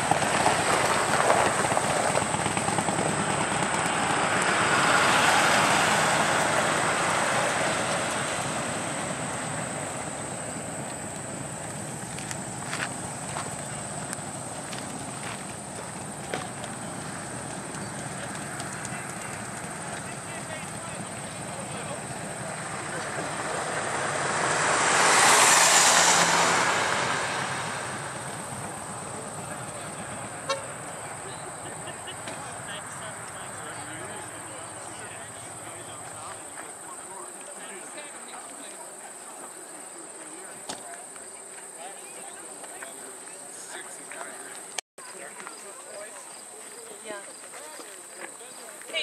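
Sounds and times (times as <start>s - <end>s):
vehicles driving past: 0.0s - 49.0s.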